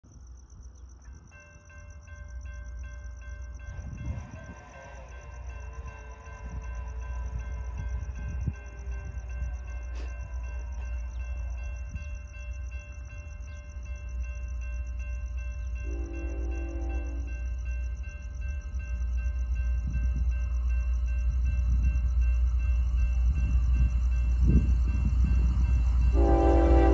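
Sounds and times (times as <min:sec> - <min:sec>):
freight train rumble: 0:00.6 - 0:26.9
railroad crossing bell ringing: 0:00.9 - 0:26.9.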